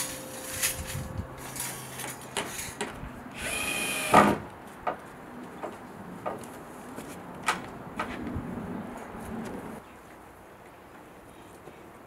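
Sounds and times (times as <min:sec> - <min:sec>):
metal scraping: 0:00.0 - 0:02.8.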